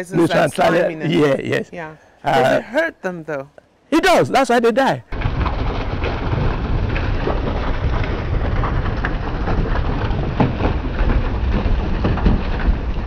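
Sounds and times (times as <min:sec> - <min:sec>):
low rumble: 0:05.2 - 0:13.0.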